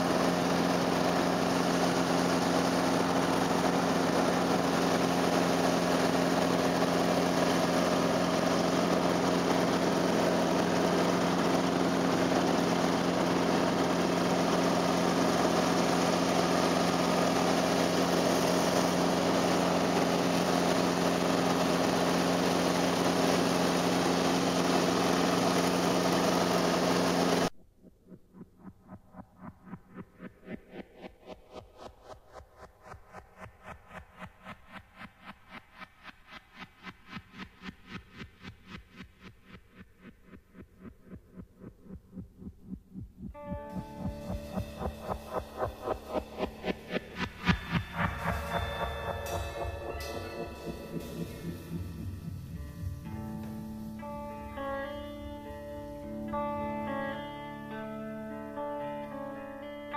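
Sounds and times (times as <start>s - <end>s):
helicopter engine and rotor drone: 0.0s - 59.3s
faint music: 43.3s - 59.9s.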